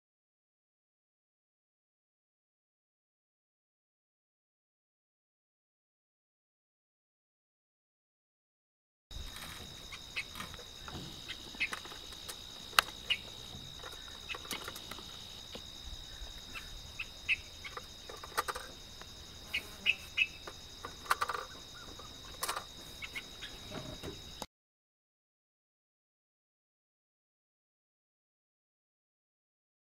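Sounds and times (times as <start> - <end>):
pulsing insect drone: 9.2 - 24.5
bird chirps: 12.8 - 15.3, 16.1 - 18.3, 19.5 - 20.5, 21.2 - 23.9.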